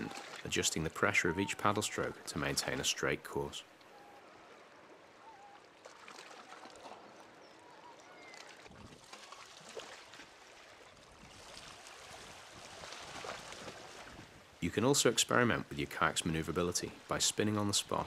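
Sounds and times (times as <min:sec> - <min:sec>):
paddle strokes splashing: 0:00.0 - 0:03.1, 0:03.7 - 0:14.6
water lapping against hull: 0:00.0 - 0:03.1, 0:03.7 - 0:14.6.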